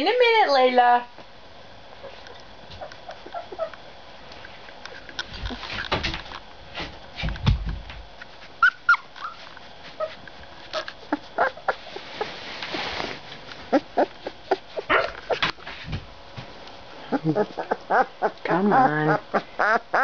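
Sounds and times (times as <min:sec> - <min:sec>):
puppies whimpering and squeaking: 0:02.0 - 0:03.8, 0:08.5 - 0:12.4, 0:13.6 - 0:15.6, 0:17.0 - 0:20.0
rustling and handling noise: 0:02.0 - 0:17.9.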